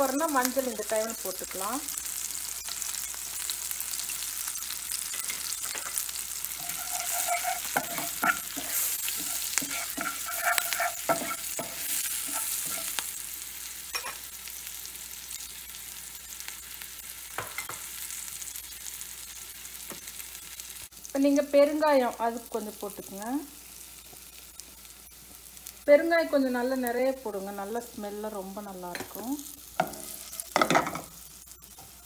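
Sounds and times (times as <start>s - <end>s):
spices sizzling in oil: 0.0s - 32.0s
spatula scraping pan: 5.0s - 13.1s.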